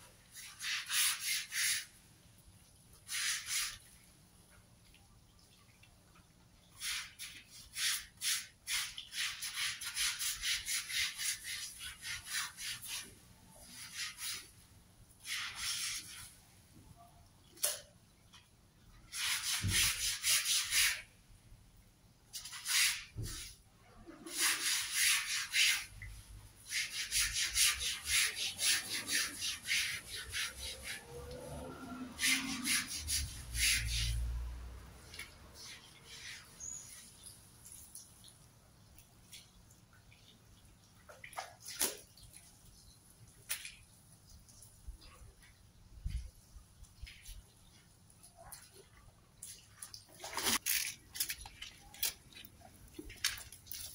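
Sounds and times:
brush scrubbing wet carpet: 0.3s - 1.9s, 3.0s - 3.9s, 6.8s - 14.5s, 15.2s - 16.4s, 19.1s - 21.1s, 24.2s - 37.1s.

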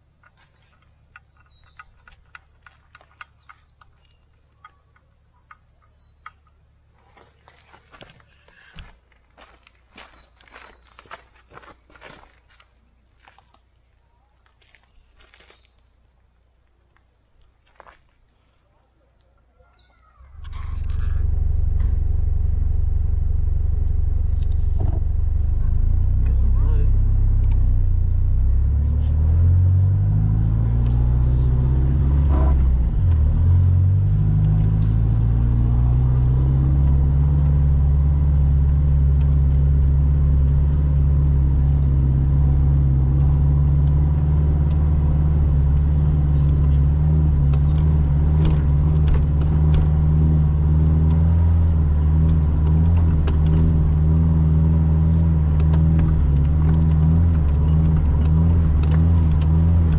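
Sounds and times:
vehicle engine running: 20.2s - 59.9s.

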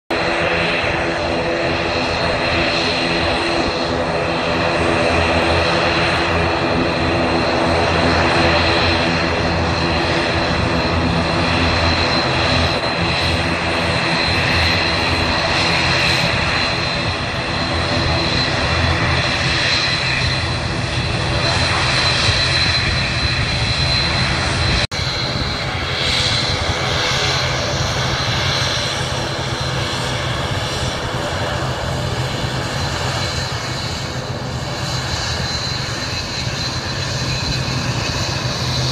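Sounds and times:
turboprop engines droning: 0.1s - 38.9s.

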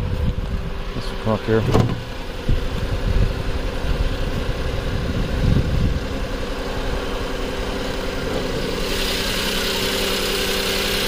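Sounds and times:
misfiring car engine idling: 0.0s - 11.0s
car hood knocks: 1.6s - 2.1s.

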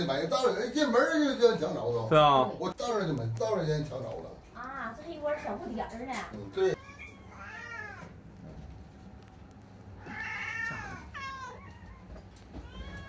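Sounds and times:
cats meowing: 6.7s - 8.4s, 9.8s - 13.0s.

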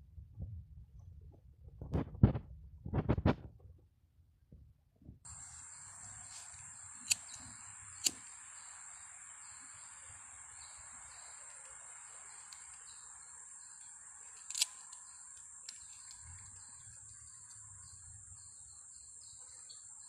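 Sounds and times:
high-pitched insect chorus: 5.3s - 20.0s
sharp clicks: 6.5s - 8.4s, 12.4s - 12.9s, 13.8s - 17.6s.

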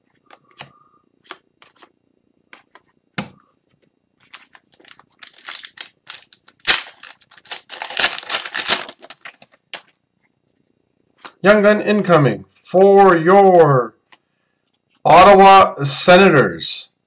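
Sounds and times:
foil wrapper crinkling and tearing: 4.2s - 10.0s.

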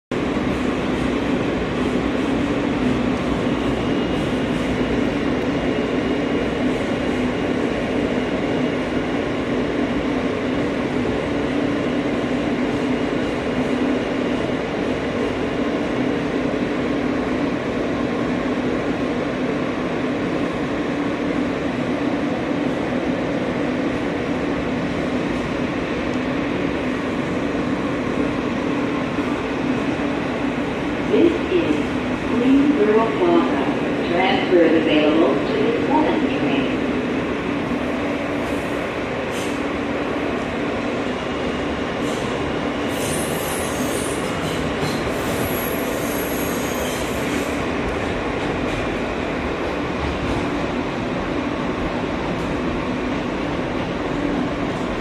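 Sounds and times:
subway train rumbling: 0.0s - 55.0s.

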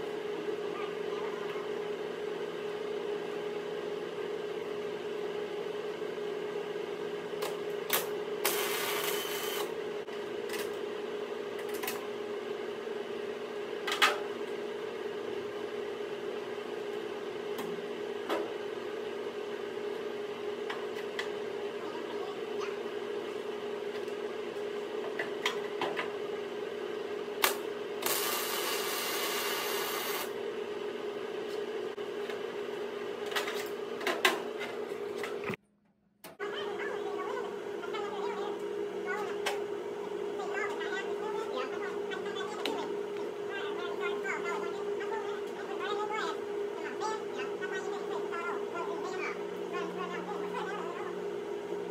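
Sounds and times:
welder electrical hum: 0.0s - 51.9s
welding arc crackle: 27.4s - 30.3s.

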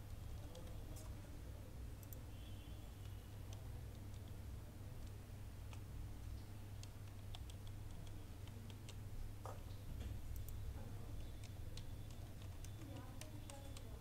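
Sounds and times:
keyboard keys clicking: 6.7s - 9.0s, 11.2s - 14.0s.

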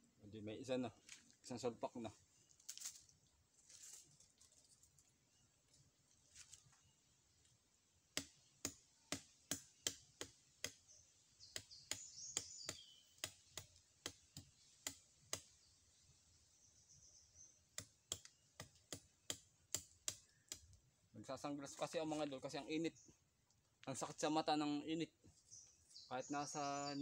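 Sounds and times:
machete chopping plant stem: 8.1s - 10.8s, 11.5s - 15.6s, 17.8s - 20.7s.

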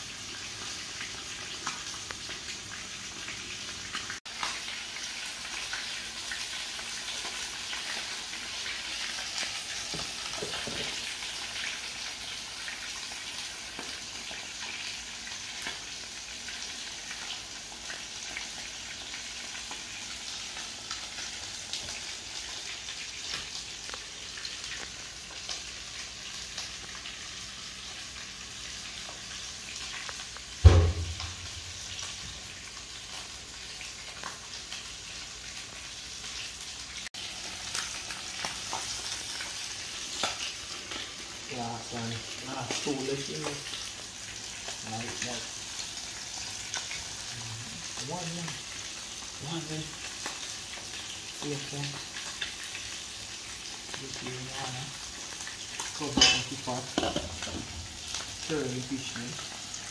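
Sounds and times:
fish frying in oil: 0.0s - 59.9s
loud thump: 30.6s - 31.9s.

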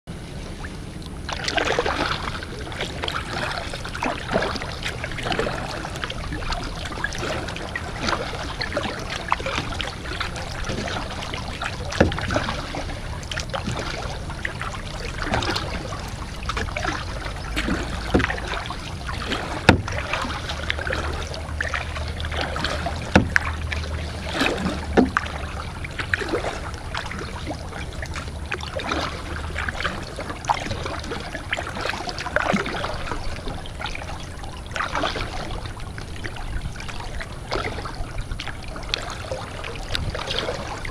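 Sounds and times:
paddle strokes in water: 0.1s - 40.9s
water dripping and trickling: 1.0s - 40.9s
paddle knocks: 6.8s - 27.3s.

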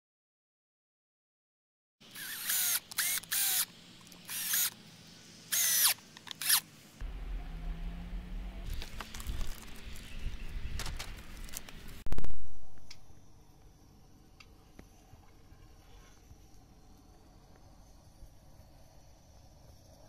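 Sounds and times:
cordless drill driving screw: 2.1s - 4.8s, 5.5s - 6.6s
wind rumble on microphone: 7.2s - 12.8s.

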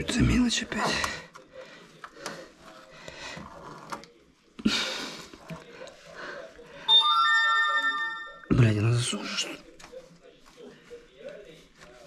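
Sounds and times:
electronic chime: 6.9s - 8.7s.

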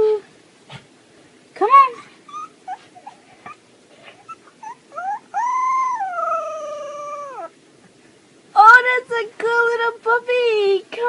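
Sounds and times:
puppy howling: 2.3s - 3.3s, 4.2s - 7.6s
puppy yelp: 2.3s - 7.5s
puppy whimpering: 2.3s - 7.6s.

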